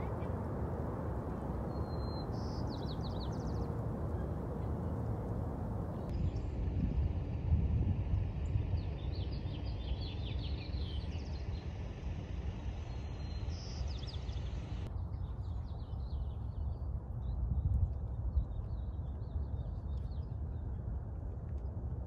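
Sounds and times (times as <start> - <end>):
small birds chirping: 0.0 - 6.5
wind rumbling on microphone: 0.0 - 22.0.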